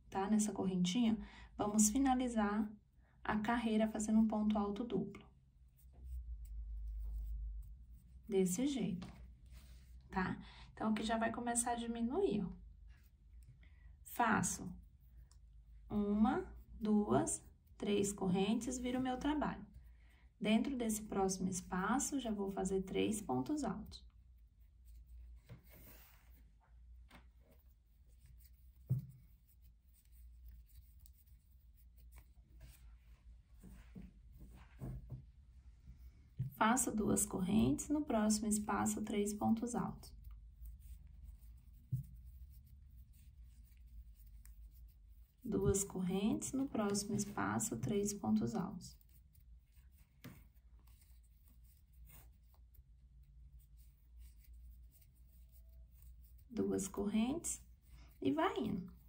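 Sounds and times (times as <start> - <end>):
crochet hook scratching yarn: 3.3 - 10.2, 11.0 - 19.9, 20.5 - 33.2, 36.0 - 59.0.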